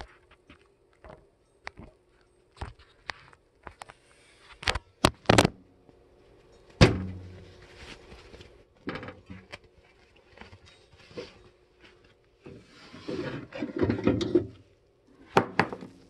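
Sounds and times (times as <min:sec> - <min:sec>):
loud thump with low ringing: 0:06.8 - 0:07.3.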